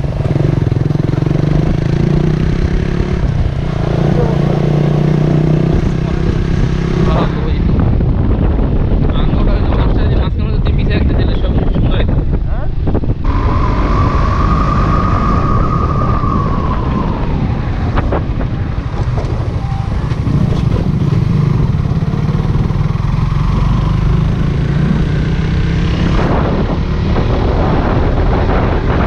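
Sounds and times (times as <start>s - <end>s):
motorcycle engine running: 0.0s - 8.9s, 17.9s - 28.0s
wind and road noise: 0.0s - 29.0s.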